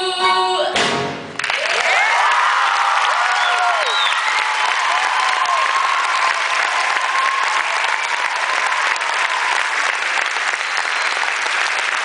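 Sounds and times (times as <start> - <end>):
audience applauding: 1.3 - 12.0
person cheering: 1.6 - 9.6.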